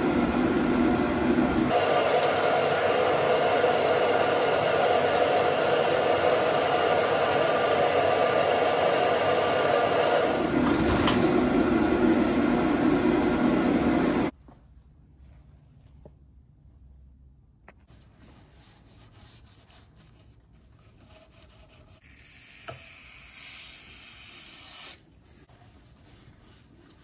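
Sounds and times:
motor-driven fan whirring: 0:00.0 - 0:14.3.

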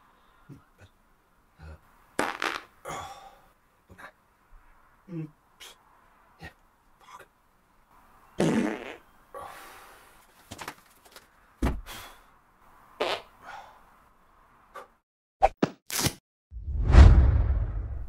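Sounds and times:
farts: 0:02.2 - 0:02.7, 0:08.4 - 0:09.0.

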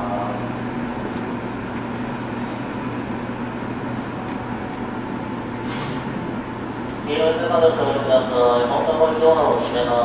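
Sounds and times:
train equipment humming: 0:00.0 - 0:10.0
short hiss: 0:05.6 - 0:06.2.

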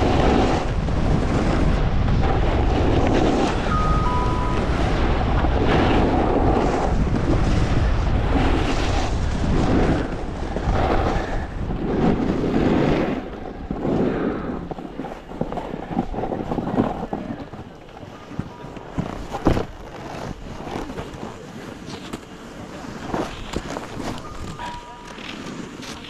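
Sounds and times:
wind buffeting microphone: 0:00.0 - 0:17.7
snowboard scraping packed snow: 0:00.0 - 0:26.0.

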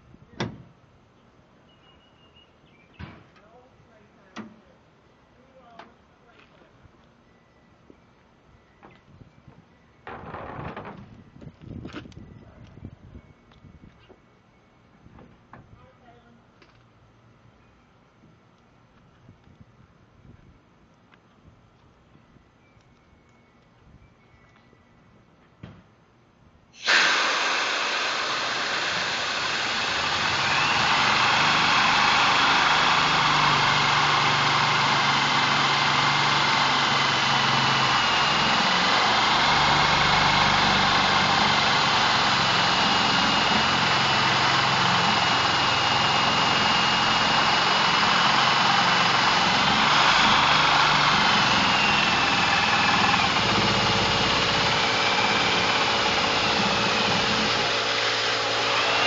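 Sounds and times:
compressed air hiss: 0:26.8 - 0:38.3
drill motor hum: 0:26.8 - 0:59.0.

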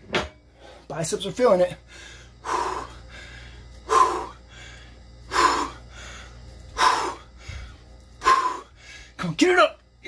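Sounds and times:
man breathing hard: 0:01.8 - 0:09.2.

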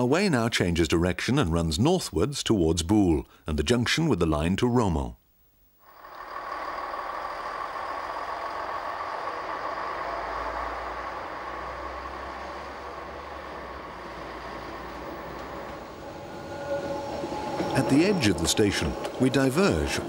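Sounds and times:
electric railcar running: 0:05.9 - 0:20.0.

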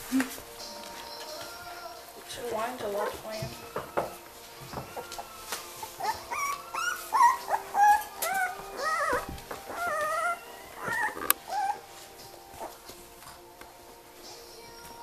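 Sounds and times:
puppies whimpering and yipping: 0:04.6 - 0:13.0.

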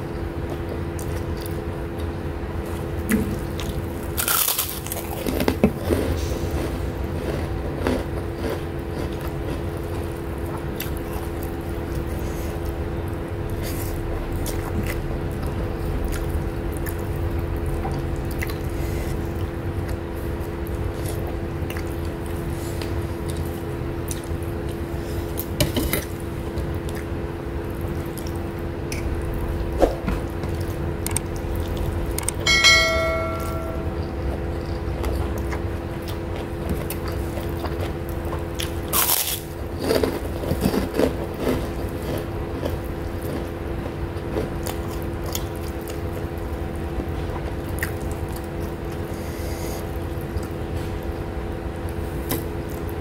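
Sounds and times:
steady electrical hum: 0:00.0 - 0:53.0
chewing and mouth clicks: 0:00.4 - 0:29.5, 0:34.0 - 0:49.2, 0:49.8 - 0:53.0
short bell-like chime: 0:32.5 - 0:34.0.

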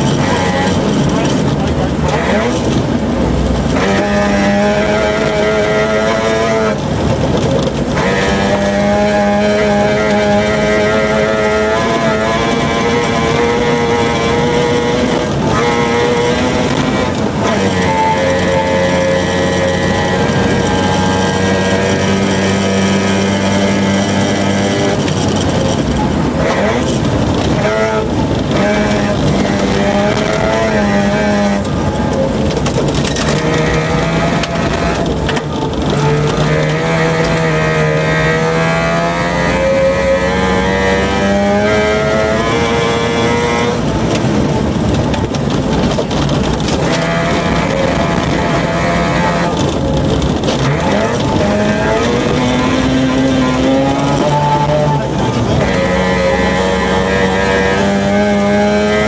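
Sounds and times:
rally car engine revving: 0:00.0 - 0:59.0
tyres rushing on gravel: 0:43.8 - 0:56.0.

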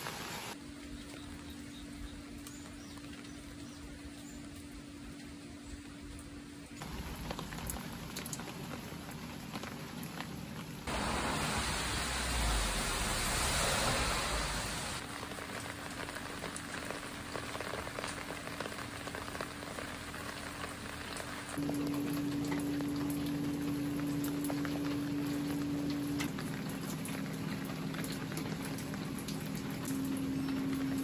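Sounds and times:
rain hissing: 0:00.0 - 0:00.6, 0:06.8 - 0:31.0
raindrops striking earthenware: 0:00.0 - 0:31.0.

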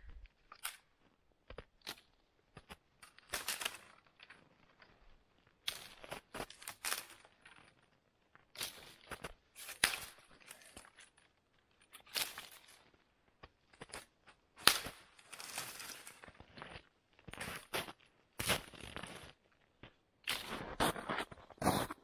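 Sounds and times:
dry branches snapping: 0:00.5 - 0:00.9, 0:03.0 - 0:04.4, 0:05.6 - 0:07.5, 0:08.5 - 0:12.8, 0:13.7 - 0:16.3
twigs rustling: 0:01.8 - 0:17.7.

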